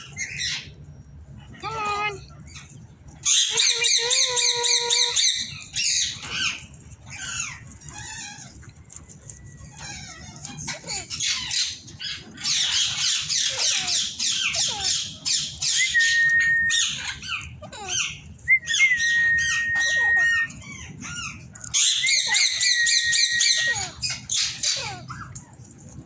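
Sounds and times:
parakeets screeching and chattering: 0.0s - 26.0s
long level whistles: 15.8s - 16.9s, 18.5s - 20.5s.

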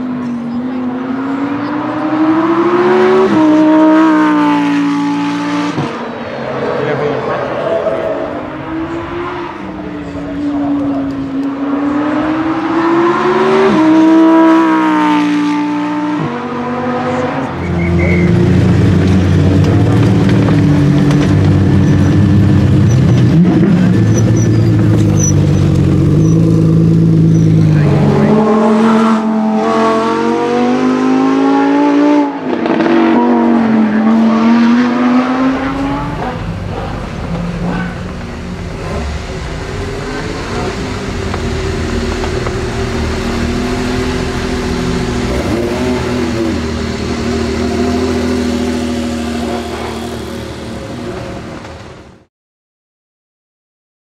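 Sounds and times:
car engine revving: 0.0s - 52.3s.

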